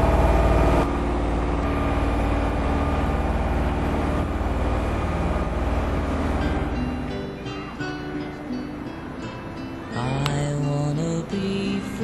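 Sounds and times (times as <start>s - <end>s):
engine throbbing: 0.0s - 9.6s.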